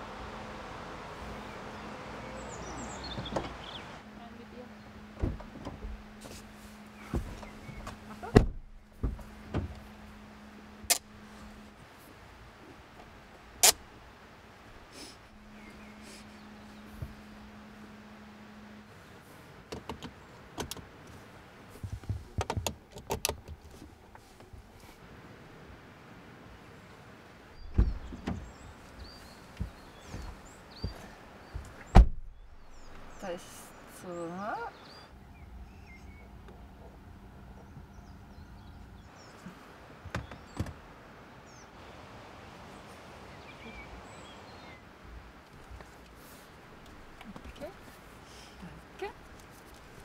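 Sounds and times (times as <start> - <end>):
birds chirping: 1.1 - 11.8, 14.6 - 20.6, 26.5 - 50.0
car door shutting: 5.2 - 10.0, 27.6 - 28.7, 29.6 - 32.4
dull thumps and rustles: 5.2 - 10.1, 21.7 - 24.8, 27.6 - 33.0.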